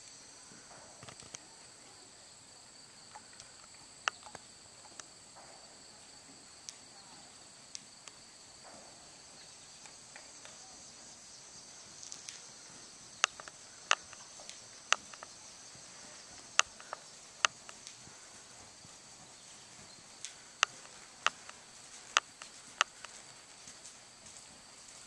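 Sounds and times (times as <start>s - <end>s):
insects droning: 0.0s - 25.0s
sharp clicks: 3.1s - 5.1s, 12.0s - 18.4s, 20.2s - 24.4s.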